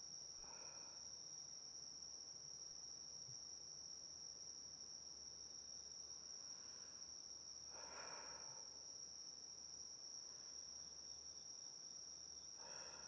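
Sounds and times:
insects calling: 5.4 - 13.0.

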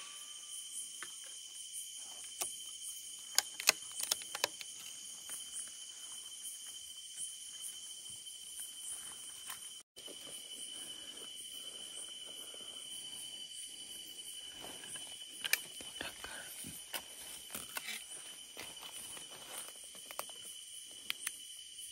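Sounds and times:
crickets trilling: 0.0 - 21.9
sharp clicks: 3.3 - 4.8.

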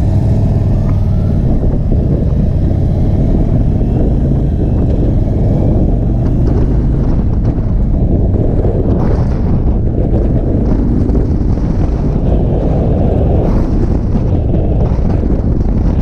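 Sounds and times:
motorcycle engine riding: 0.0 - 16.0
wind rumble on microphone: 0.0 - 16.0.

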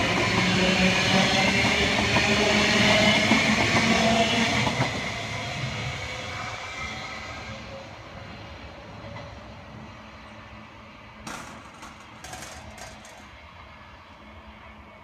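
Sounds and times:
sharp clicks and rattles: 11.3 - 13.3
electric train running: 11.3 - 14.3.

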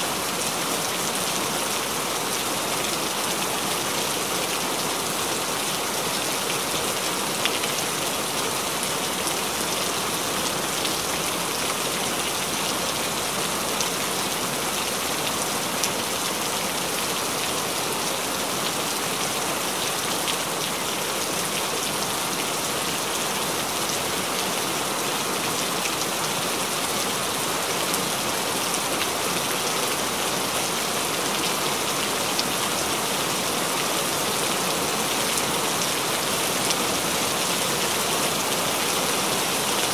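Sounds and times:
rain falling and splashing: 0.0 - 39.9.

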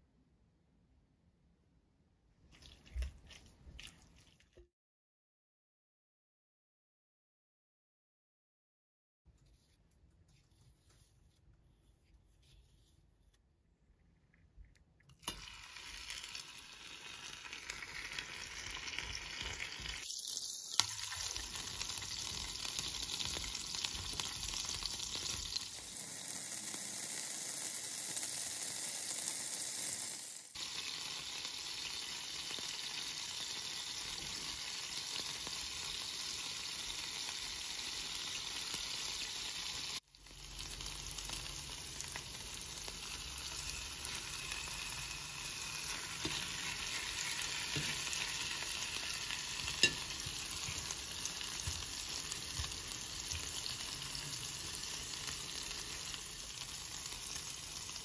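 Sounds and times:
batter sizzling in oil: 15.2 - 58.0.

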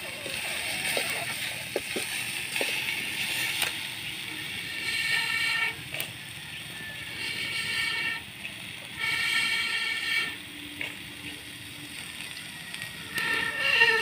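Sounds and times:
potatoes frying: 0.0 - 14.0
ladle scraping in a wok: 0.1 - 6.0, 6.8 - 8.3, 9.0 - 10.4, 13.1 - 14.0
high-pitched droning tone: 3.8 - 8.2, 9.0 - 14.0.

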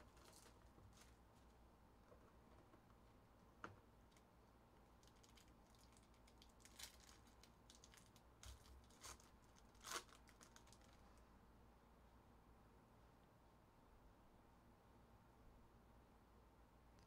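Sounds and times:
foil pack tearing and crinkling: 0.0 - 1.1, 5.0 - 11.0.

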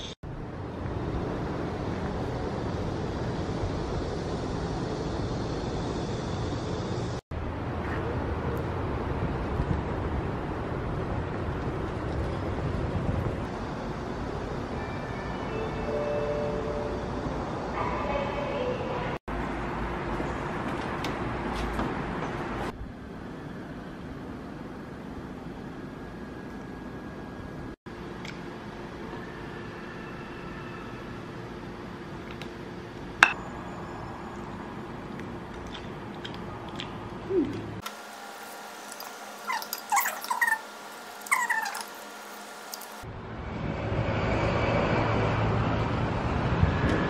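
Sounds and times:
fan or air conditioning noise: 0.0 - 47.0
faint steady whine: 22.8 - 43.2.

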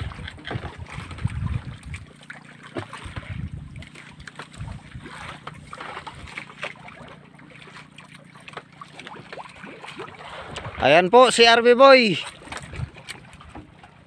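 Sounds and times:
wind gusting on the microphone: 0.0 - 2.1, 3.0 - 3.8, 12.5 - 13.1
sea water lapping against a boat: 0.0 - 14.0.

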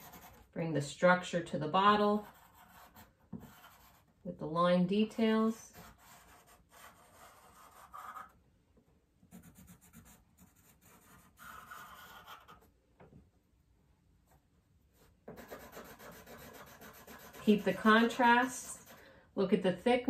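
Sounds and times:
pencil scratching on paper: 0.0 - 0.5, 1.7 - 4.2, 5.4 - 8.4, 9.3 - 12.7, 15.0 - 19.0.

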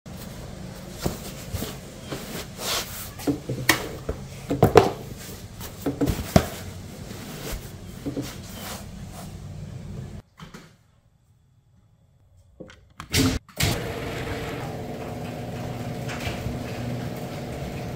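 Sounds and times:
knocks and clunks of handling: 3.2 - 6.6.

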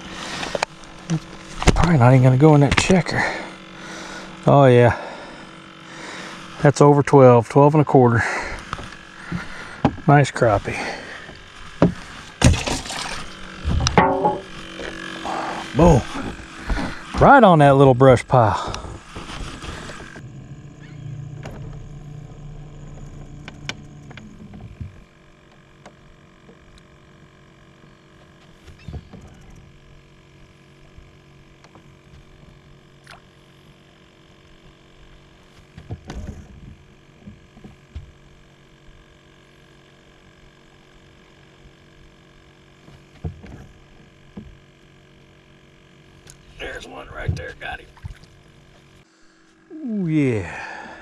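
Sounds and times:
boat engine humming: 0.0 - 51.0.

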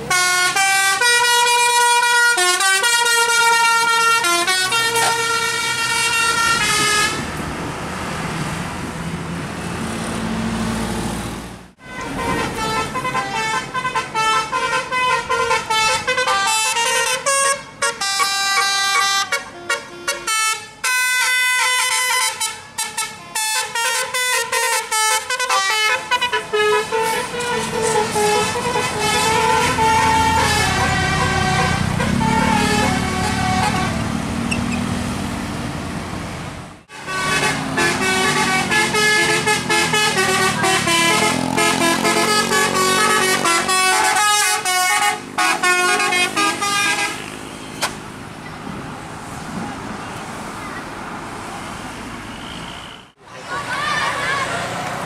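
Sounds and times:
bus horn playing a tune: 0.0 - 7.4, 11.8 - 34.2, 36.9 - 47.5
traffic noise: 0.0 - 55.0.

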